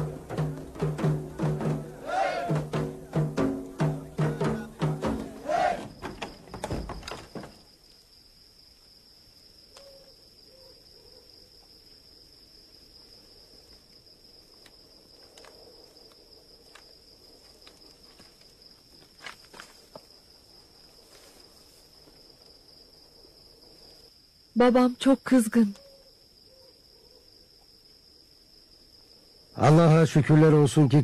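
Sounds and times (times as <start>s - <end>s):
percussive drum music: 0.0s - 5.8s
cricket chirring: 0.0s - 31.0s.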